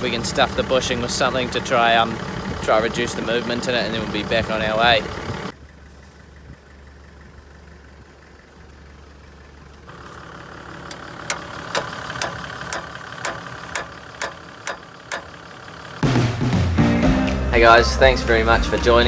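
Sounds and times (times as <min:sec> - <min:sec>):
vehicle engine humming: 0:00.0 - 0:19.0
sharp tool clicks: 0:10.9 - 0:15.3.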